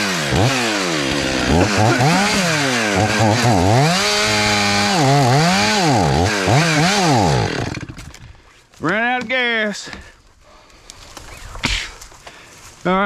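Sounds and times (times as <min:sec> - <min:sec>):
two-stroke chainsaw revving: 0:00.0 - 0:08.1.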